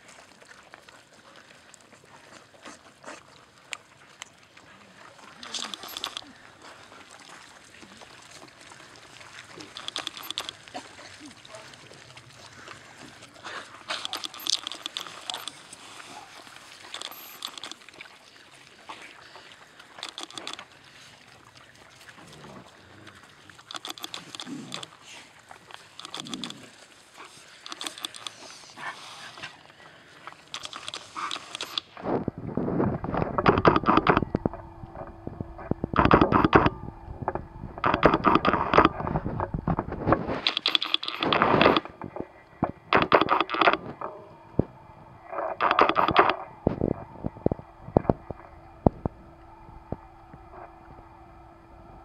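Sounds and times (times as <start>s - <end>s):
dogs chewing meat and bone: 0.0s - 29.6s, 30.2s - 44.7s
dogs growling low: 22.2s - 23.1s.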